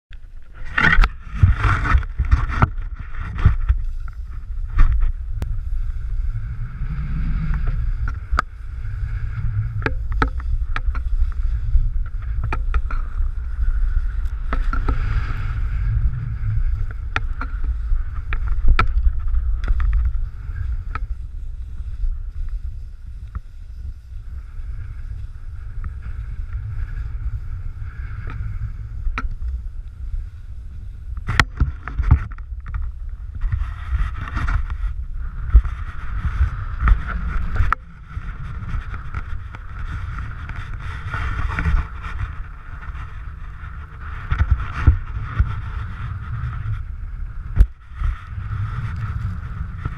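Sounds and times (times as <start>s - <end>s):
wind rumbling on microphone: 0.1s - 49.9s
skis sliding over snow: 0.5s - 49.9s.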